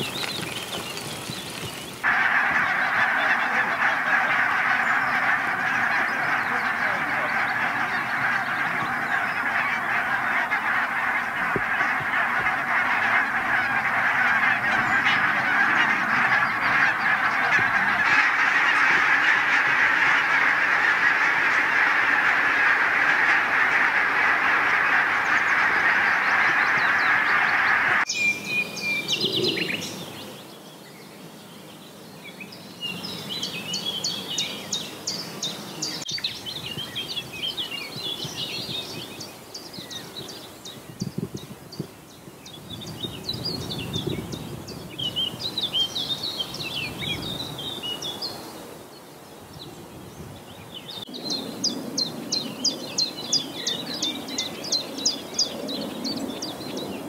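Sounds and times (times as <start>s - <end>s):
geese honking: 0.0s - 28.1s
songbirds singing: 0.0s - 57.0s.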